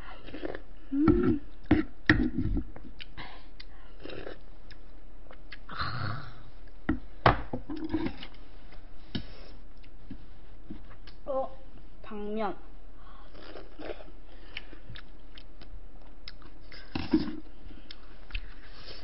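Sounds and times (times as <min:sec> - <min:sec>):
person chewing: 0:00.1 - 0:05.8, 0:09.2 - 0:10.1, 0:13.2 - 0:19.0
person humming: 0:00.8 - 0:01.5.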